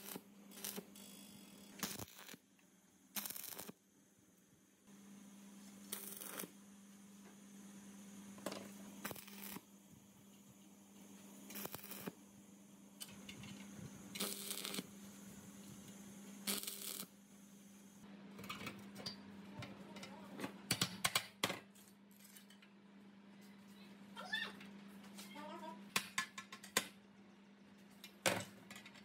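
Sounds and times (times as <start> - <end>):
welding arc crackle: 0.0 - 2.4, 3.1 - 3.8, 5.8 - 6.6, 8.9 - 9.7, 11.4 - 12.2, 14.0 - 18.0.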